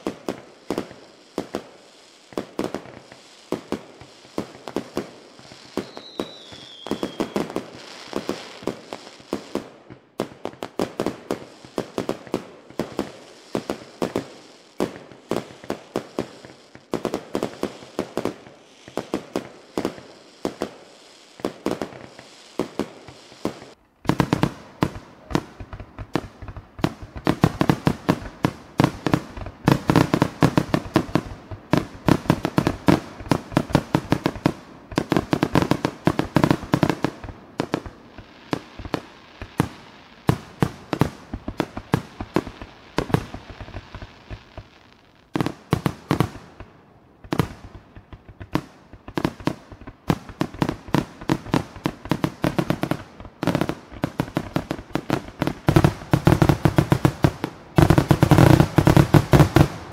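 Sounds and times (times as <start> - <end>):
fireworks bangs and crackles: 0.0 - 59.9
falling firework whistle: 5.3 - 9.5.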